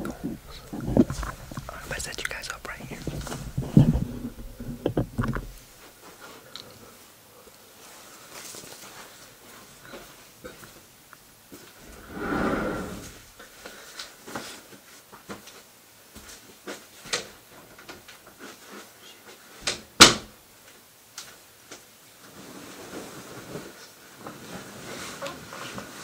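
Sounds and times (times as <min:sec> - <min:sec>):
bedding rustling: 0:00.0 - 0:10.3, 0:22.2 - 0:26.0.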